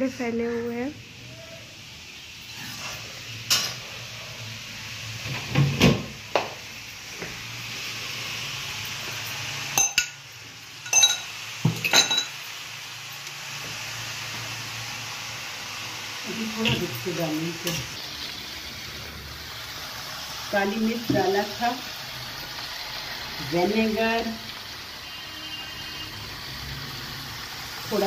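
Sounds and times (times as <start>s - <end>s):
metal pots and utensils clanking: 2.5s - 3.9s, 9.7s - 10.2s, 10.8s - 12.4s, 16.6s - 17.0s.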